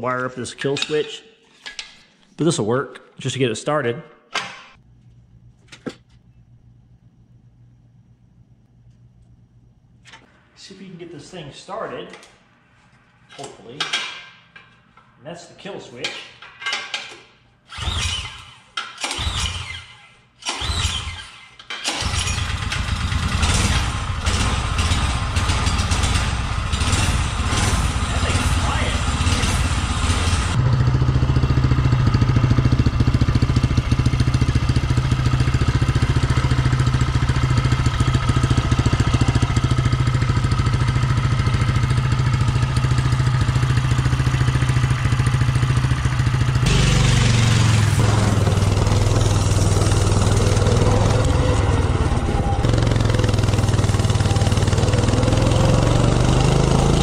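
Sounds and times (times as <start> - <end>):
recoil starter tugs: 17.7 - 57.0
small engine idling: 21.9 - 57.0.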